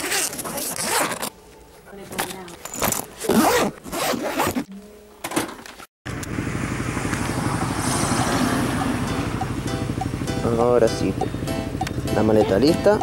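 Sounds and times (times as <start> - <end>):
suitcase zipper pulled: 0.0 - 1.3, 2.2 - 4.7
steady noise: 6.1 - 13.0.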